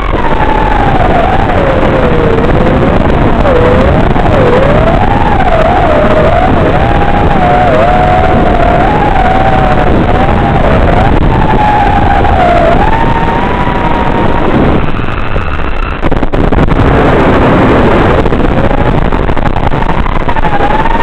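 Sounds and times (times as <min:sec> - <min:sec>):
quadcopter motors whining: 0:00.0 - 0:16.5
heavy rushing noise: 0:00.0 - 0:21.0.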